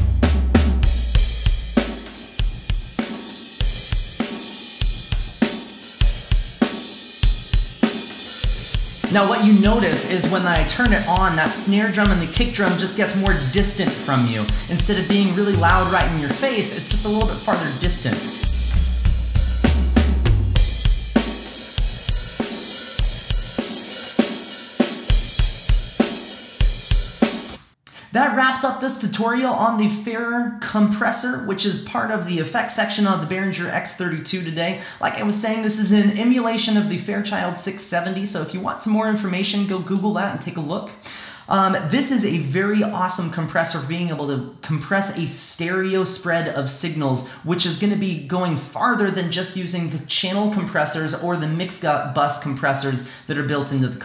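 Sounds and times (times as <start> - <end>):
drum kit groove: 0.0 - 27.7.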